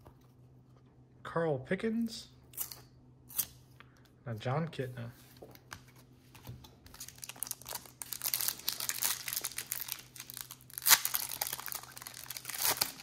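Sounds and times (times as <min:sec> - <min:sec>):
foil wrapper crinkling: 0:06.9 - 0:13.0.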